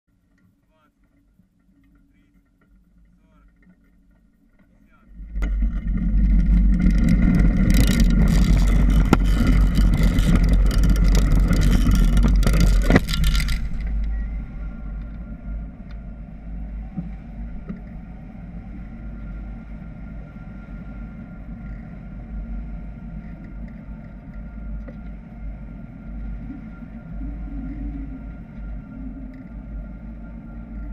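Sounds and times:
faint steady tone: 0:00.1 - 0:30.9
cart rattling over dirt: 0:00.2 - 0:14.8.

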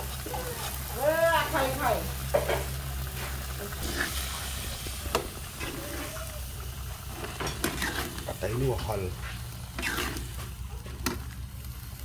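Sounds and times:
food sizzling in a wok: 0:00.0 - 0:12.0
metal utensil scraping wok: 0:02.2 - 0:11.4.

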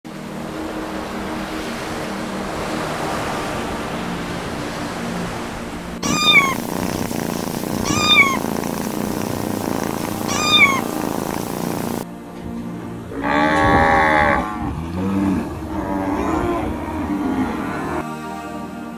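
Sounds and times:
steady rushing noise: 0:00.1 - 0:12.1
kitten meowing: 0:06.0 - 0:12.0.

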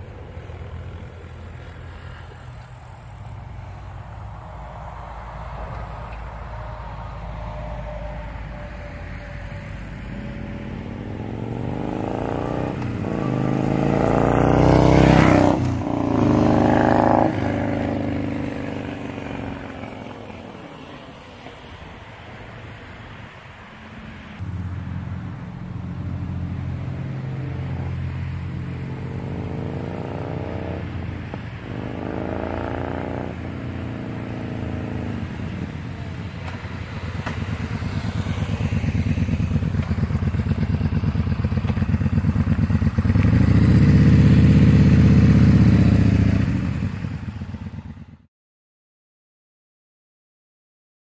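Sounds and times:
motorcycle passing by: 0:00.0 - 0:48.3
motorcycle engine revving: 0:09.6 - 0:21.0, 0:24.3 - 0:48.3.

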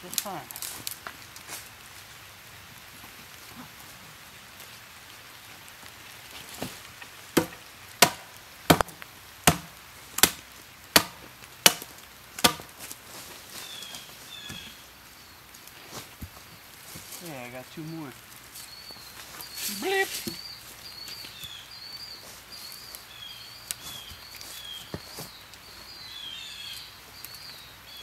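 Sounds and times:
hatchet chopping wood: 0:07.4 - 0:12.8.

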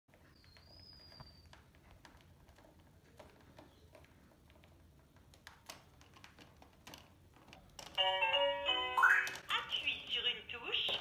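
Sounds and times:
beak tapping plastic toy piano: 0:07.8 - 0:11.0.

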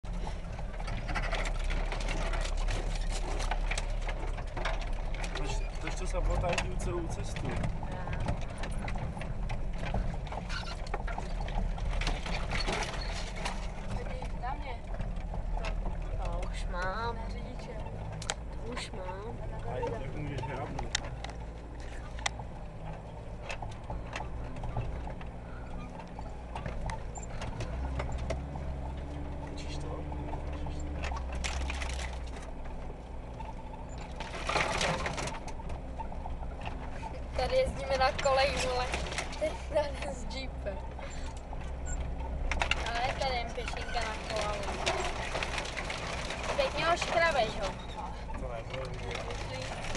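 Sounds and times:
knocks and rattles: 0:00.0 - 0:49.9
vehicle engine and road drone: 0:00.0 - 0:49.9.

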